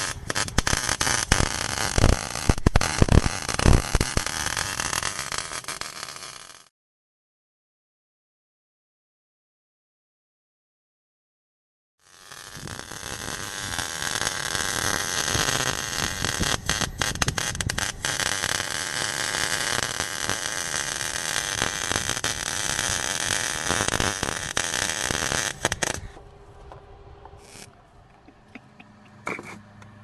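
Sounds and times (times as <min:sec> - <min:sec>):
welding arc crackling: 0:00.0 - 0:06.7, 0:12.0 - 0:26.2, 0:27.4 - 0:27.8.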